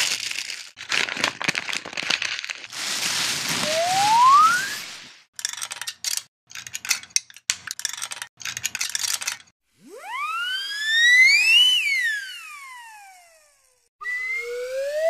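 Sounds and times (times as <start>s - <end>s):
whistle sliding up and down: 3.6s - 4.9s, 9.9s - 13.2s, 14.0s - 15.0s.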